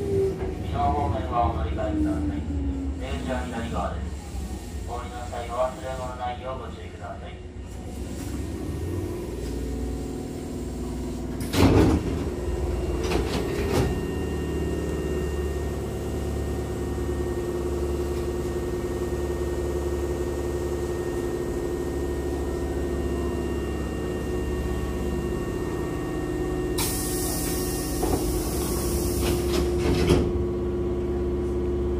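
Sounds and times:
train equipment hum: 0.0 - 31.9
train doors sliding open: 7.6 - 9.7, 10.8 - 15.9, 26.7 - 30.5.

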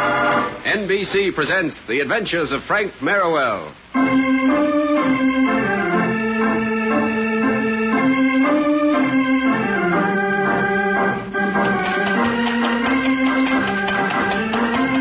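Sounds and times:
organ playing slow melody: 3.8 - 15.0.

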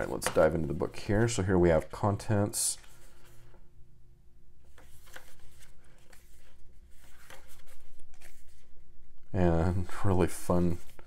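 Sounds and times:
booklet pages turning: 0.0 - 3.6, 4.6 - 8.8, 9.9 - 11.0.

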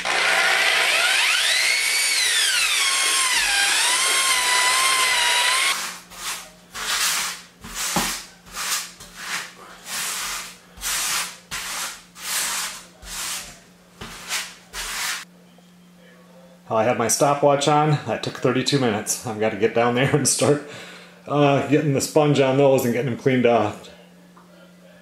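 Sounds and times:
drill paddle mixer whining: 0.0 - 5.8
grout float scraping tile: 4.3 - 15.3.

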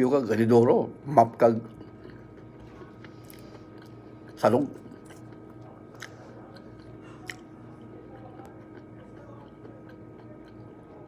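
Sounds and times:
steady low hum: 0.0 - 11.0
man chewing nuts: 1.2 - 11.0.

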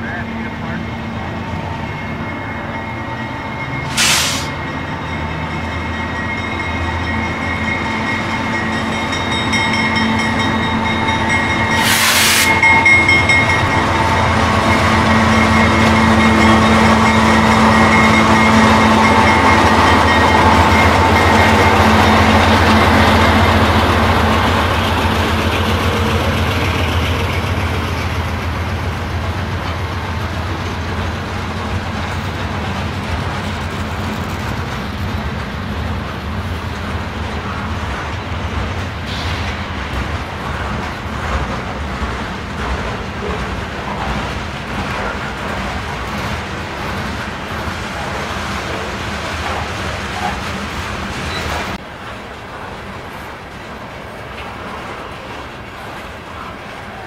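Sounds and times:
diesel locomotive passing: 0.0 - 57.0
bursts of hiss: 3.9 - 4.5, 11.8 - 12.6.

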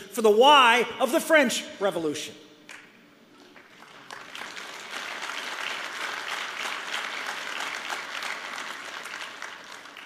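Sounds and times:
audience applauding: 3.6 - 10.0.

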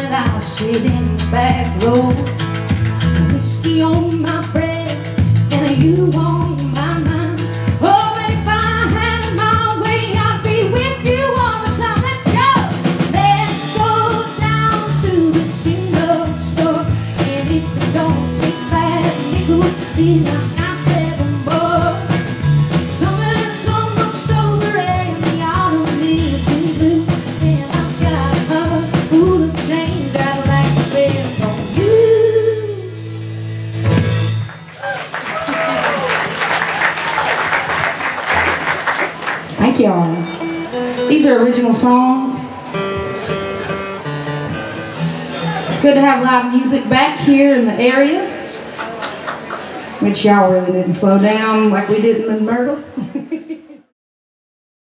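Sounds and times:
woman singing: 0.0 - 2.5, 3.2 - 33.0
live band playing: 0.0 - 53.0.

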